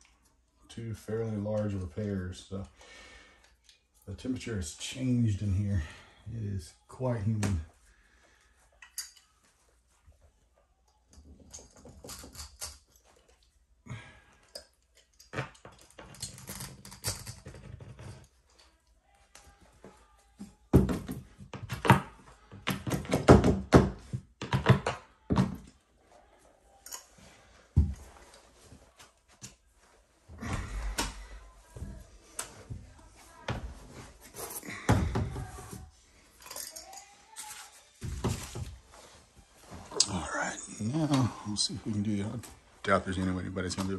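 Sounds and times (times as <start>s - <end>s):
hand tools clinking: 8.8s - 9.4s, 36.4s - 37.6s.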